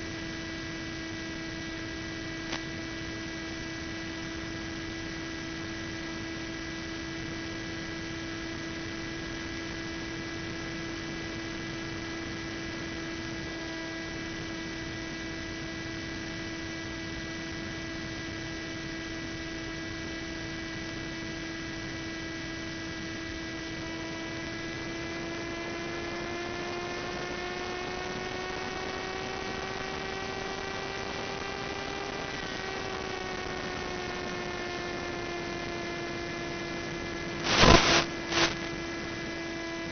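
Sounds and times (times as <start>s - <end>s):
hiss: 37.5s - 38.6s.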